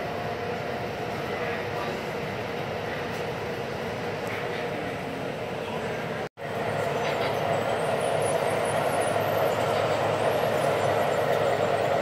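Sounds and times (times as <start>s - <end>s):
model train running: 0.0s - 12.0s.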